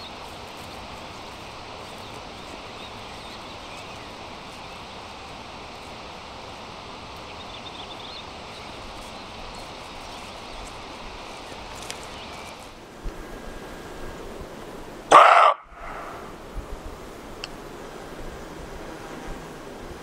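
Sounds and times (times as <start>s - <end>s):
rustling noise: 8.4s - 14.8s.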